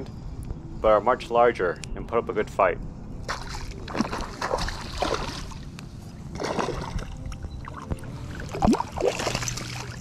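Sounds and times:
water sloshing against float tube: 3.3s - 10.0s.

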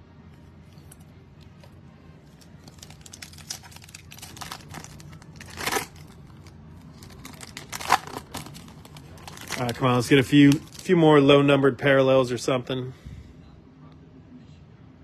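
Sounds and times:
foil wrapper crinkling: 2.4s - 11.0s.

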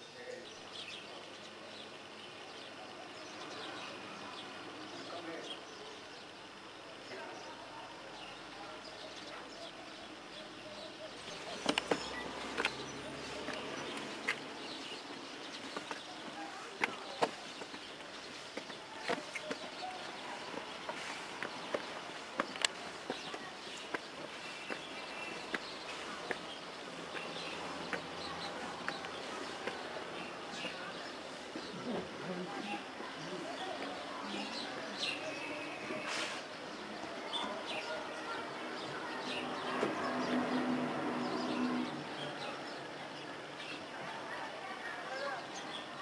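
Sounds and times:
distant voices: 0.0s - 46.0s
distant chirps: 3.6s - 36.1s
footsteps walking: 11.3s - 34.1s.

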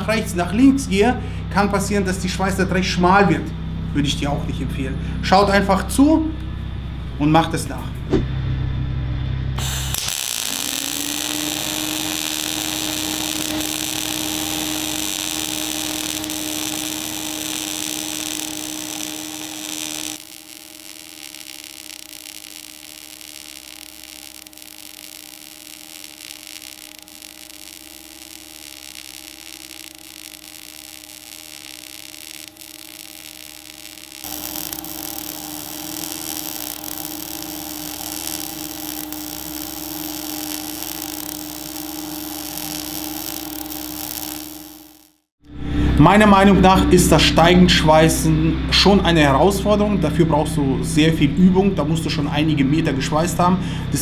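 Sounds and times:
welder hum: 9.5s - 54.0s
welding arc hiss and crackle: 9.6s - 45.3s.

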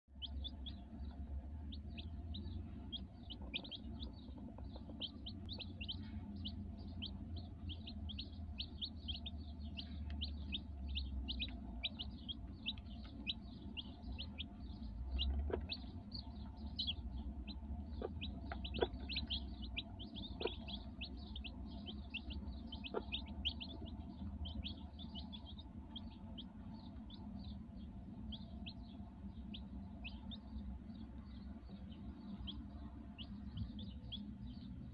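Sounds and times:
chicks peeping: 0.1s - 34.9s.

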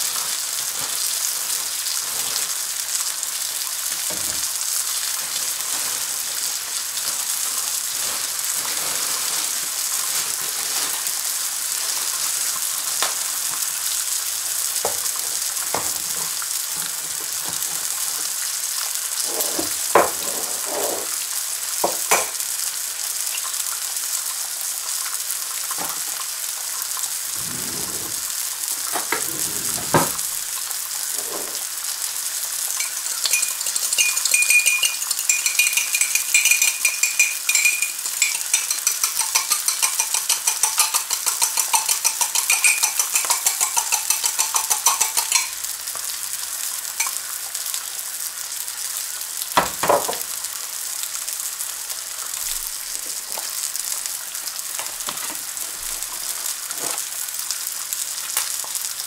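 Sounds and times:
meat sizzling in a frying pan: 0.0s - 59.0s
seasoning grinder crunching: 32.6s - 46.1s.

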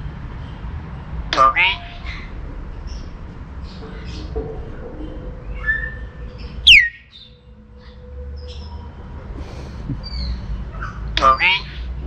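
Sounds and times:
low steady rumble: 0.0s - 12.0s
high bird chirps: 5.0s - 9.0s, 10.0s - 11.8s.

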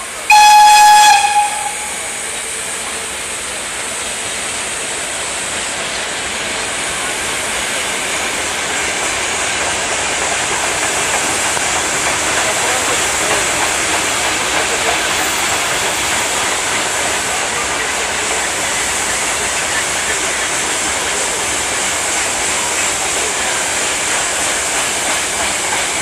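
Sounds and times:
train wheels rattling on rail: 0.0s - 26.0s
locomotive horn blast: 0.3s - 2.5s.

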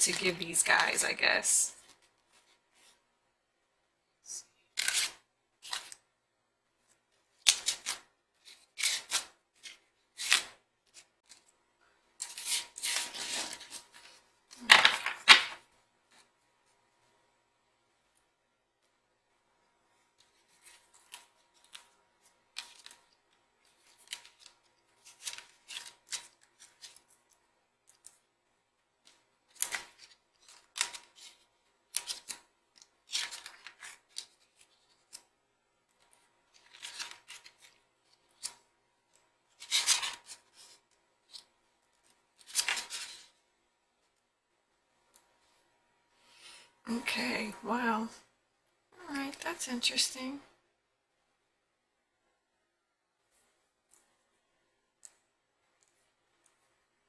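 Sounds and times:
cards shuffled and dealt: 4.7s - 6.0s, 7.4s - 11.5s, 12.2s - 15.6s, 22.5s - 28.2s, 29.1s - 35.3s, 36.0s - 38.6s, 39.5s - 43.4s.

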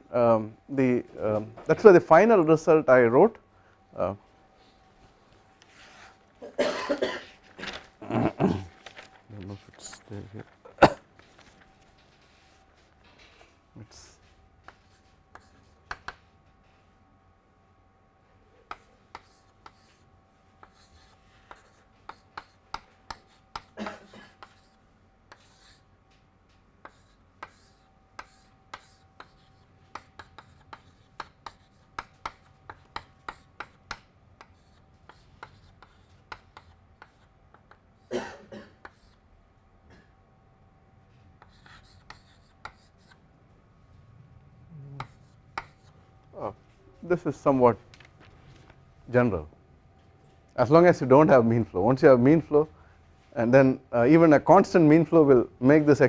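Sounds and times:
faint steady hum: 0.0s - 56.0s
chalk tapping and scratching on blackboard: 14.2s - 16.3s, 18.7s - 26.2s, 26.8s - 38.1s, 38.8s - 39.2s, 41.4s - 43.2s, 45.0s - 46.0s
chalk scraping: 20.6s - 25.8s, 26.8s - 37.8s, 41.4s - 43.2s.

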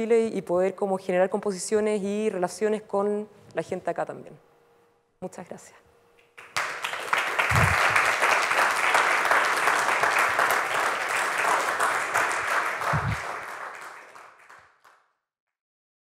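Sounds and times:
audience applauding: 6.4s - 15.0s
low thud: 7.5s - 7.9s, 12.9s - 13.2s.

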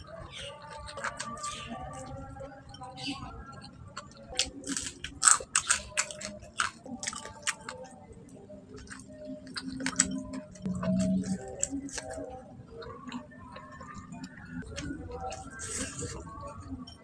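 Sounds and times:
chewing and biting food: 0.0s - 17.0s.

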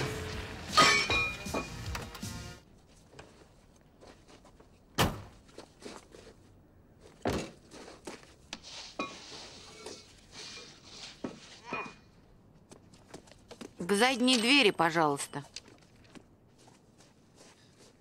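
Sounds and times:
footsteps: 0.0s - 18.0s
knocks and scuffs: 1.1s - 9.2s, 11.0s - 13.9s, 15.5s - 18.0s.

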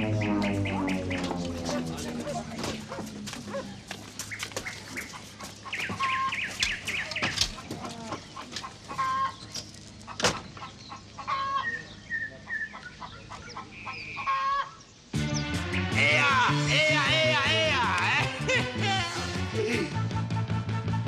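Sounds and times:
low steady hum: 0.0s - 3.9s
chickens clucking: 0.0s - 14.9s.

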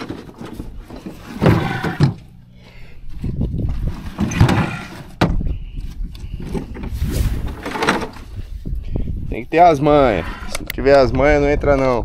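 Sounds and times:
plastic scraping on ground: 0.0s - 2.3s, 3.6s - 5.3s, 6.2s - 8.4s.

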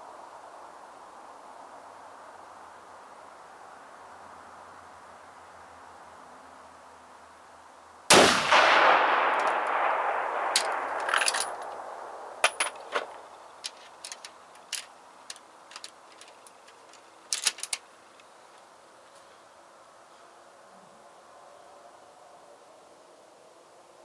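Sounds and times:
rifle shot with echo: 8.1s - 12.7s
rifle handling clicks: 9.3s - 9.8s, 10.4s - 11.8s, 12.4s - 18.3s.

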